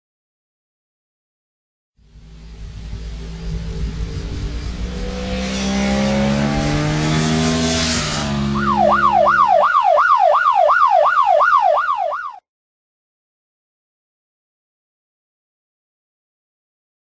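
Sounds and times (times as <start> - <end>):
motorcycle passing at speed: 2.0 - 9.8
siren wailing: 2.4 - 12.4.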